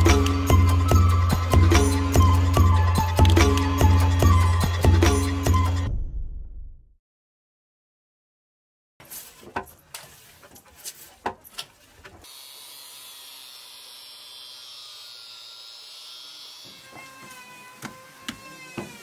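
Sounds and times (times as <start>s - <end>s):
electric planer on wood: 12.2s - 19.0s.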